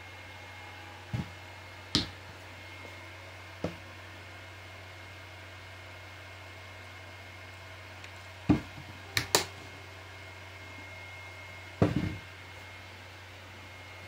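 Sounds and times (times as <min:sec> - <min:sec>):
steady low hum: 0:00.0 - 0:14.0
bottles knocking on a table: 0:11.8 - 0:12.2.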